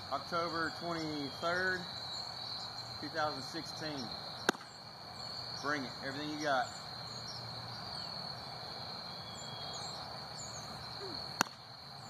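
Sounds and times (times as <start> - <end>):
crickets trilling: 0.0 - 12.0
ball smacking into mitt: 4.4 - 4.7, 11.4 - 11.6.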